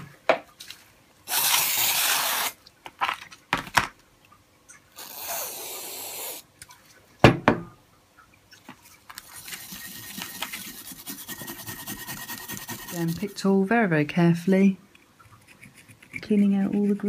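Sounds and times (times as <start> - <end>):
scratchy scrubbing: 8.8 - 13.6, 15.2 - 17.0.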